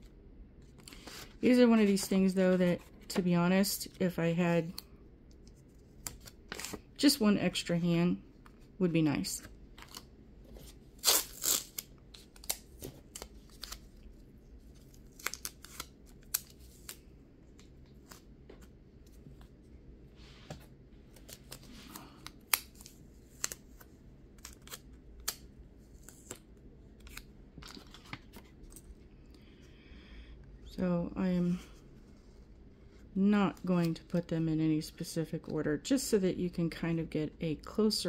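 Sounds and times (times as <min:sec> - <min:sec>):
paper cards and tape rustling: 0:00.6 - 0:04.0, 0:09.8 - 0:19.5, 0:20.5 - 0:28.9.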